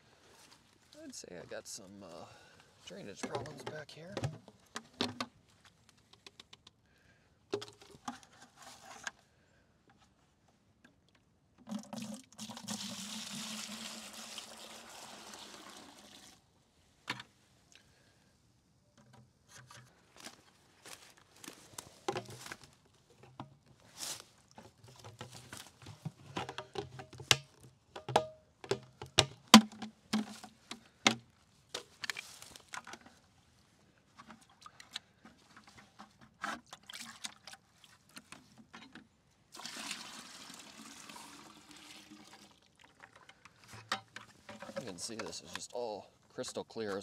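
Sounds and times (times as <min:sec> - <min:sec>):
sap pouring from bucket: 0:11.6 - 0:16.5, 0:34.4 - 0:38.2, 0:39.5 - 0:45.6
plastic lid knocks and clicks: 0:26.3 - 0:30.4.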